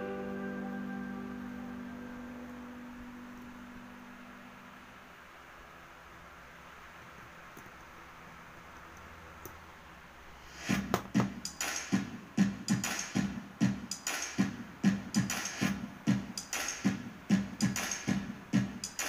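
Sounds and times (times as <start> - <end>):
music with electronic beat: 10.5 - 19.0.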